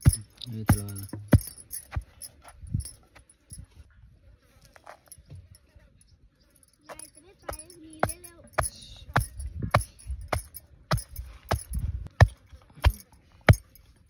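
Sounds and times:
pestle pounding in stone mortar: 0.0 - 2.3, 7.5 - 13.7.

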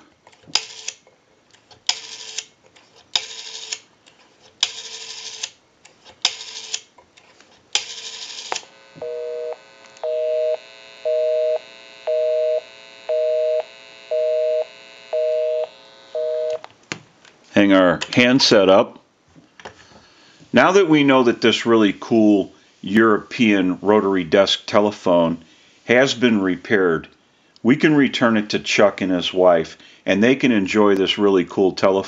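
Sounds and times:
rotary phone dial whirring: 0.3 - 1.0, 1.6 - 13.1
two-tone busy signal beeping: 9.0 - 16.6.

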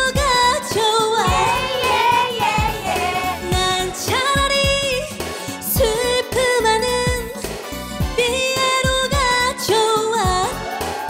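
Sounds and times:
woman singing: 0.0 - 10.6
live band with drum beat: 1.3 - 5.0, 5.7 - 6.1.

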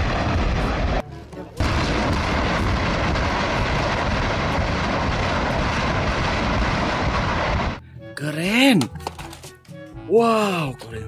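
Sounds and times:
rocket engine roar: 0.0 - 1.0, 1.6 - 7.8.

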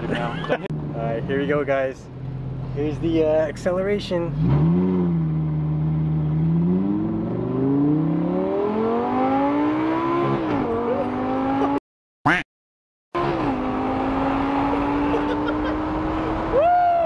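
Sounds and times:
car engine accelerating: 4.1 - 11.8, 13.2 - 16.7.

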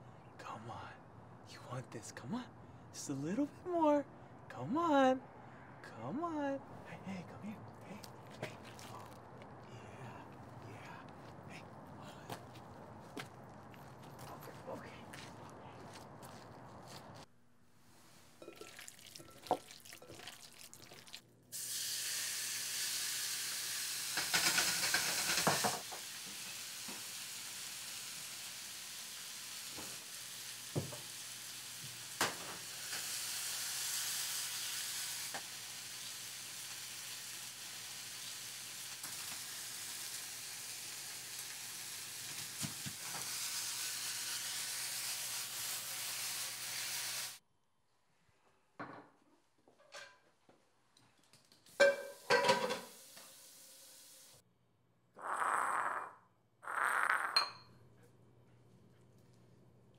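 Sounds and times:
wet handling of raw meat: 8.0 - 9.6
meat sizzling in a pan: 21.6 - 47.4, 51.8 - 54.4
utensil clinking on pan: 51.8 - 52.9.

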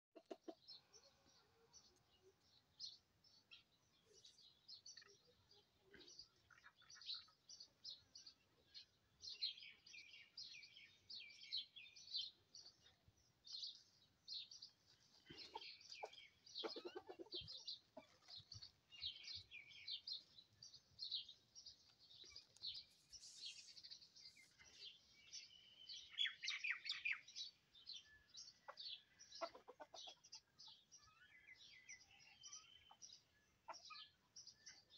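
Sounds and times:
chickens clucking: 0.1 - 2.4, 14.7 - 20.3, 28.4 - 30.9, 31.8 - 34.3
small birds chirping: 0.1 - 34.9.

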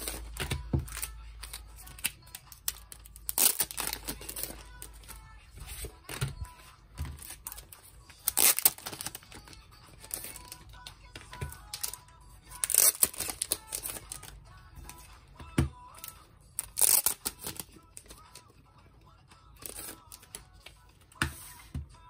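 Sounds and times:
faint background music: 0.0 - 22.0
plastic wrappers crinkling: 0.9 - 6.3, 7.1 - 10.6, 11.5 - 14.4, 16.0 - 18.2.

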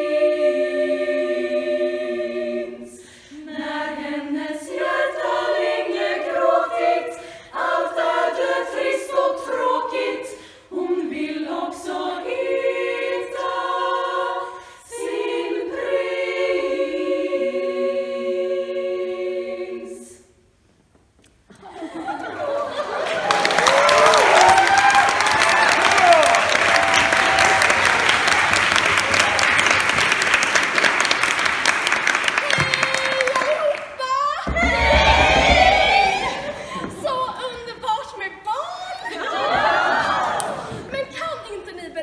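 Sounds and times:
women's choir singing a cappella: 0.0 - 20.4, 32.5 - 41.4
applause: 22.8 - 34.0.

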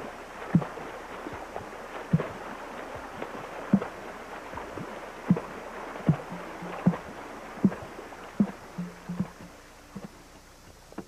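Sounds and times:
steady hiss: 0.0 - 11.0
deep thuds: 8.4 - 10.1.

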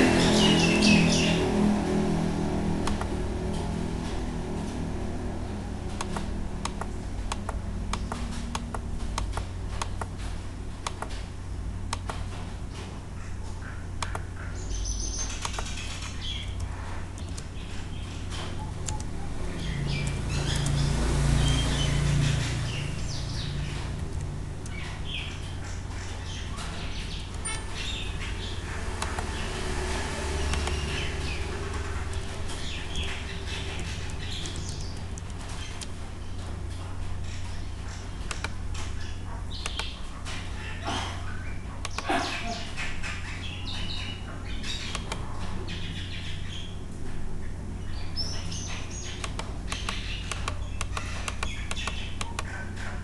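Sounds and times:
low rumble: 0.0 - 10.6
birds chirping: 0.0 - 11.2, 11.8 - 53.0
steady low hum: 0.0 - 53.0
mouse clicks: 2.8 - 3.2, 6.0 - 10.1, 10.8 - 11.2, 11.9 - 12.2, 14.0 - 14.3, 15.3 - 15.8, 18.8 - 19.1, 29.0 - 29.3, 30.5 - 30.8, 38.3 - 38.6, 39.6 - 40.0, 41.8 - 42.1, 44.9 - 45.2, 49.2 - 52.5
keyboard typing: 5.8 - 11.2, 28.9 - 29.3.

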